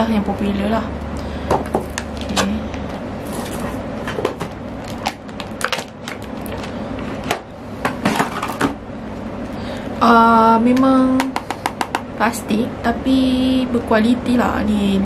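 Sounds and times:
packaging rustling: 0:03.2 - 0:07.2.

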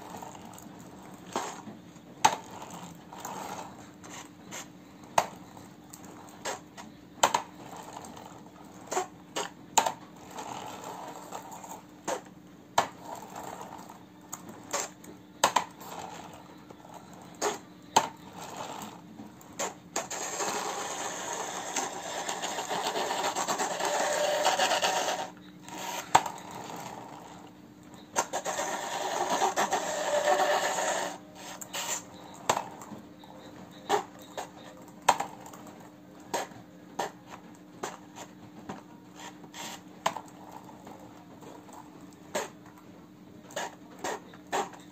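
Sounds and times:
toy truck rubbing on floor: 0:02.3 - 0:04.8, 0:10.2 - 0:12.3, 0:13.0 - 0:14.0, 0:18.2 - 0:19.0, 0:19.6 - 0:27.4, 0:28.2 - 0:32.6, 0:39.1 - 0:39.9.

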